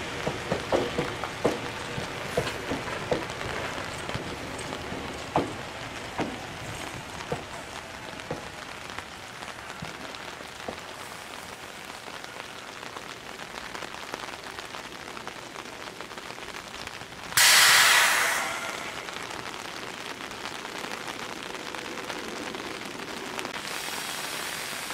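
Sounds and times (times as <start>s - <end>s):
rain falling: 0.0s - 24.9s
sudden loud hiss: 17.4s - 19.5s, 23.6s - 24.9s.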